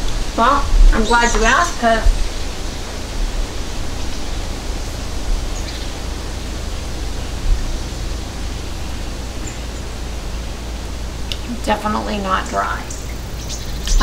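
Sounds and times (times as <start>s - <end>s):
background hiss: 0.0s - 14.0s
low hum: 0.0s - 14.0s.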